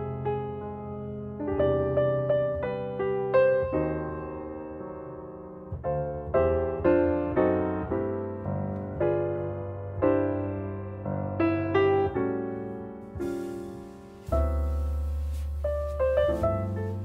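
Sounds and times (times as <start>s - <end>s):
solo piano melody: 0.0s - 17.0s.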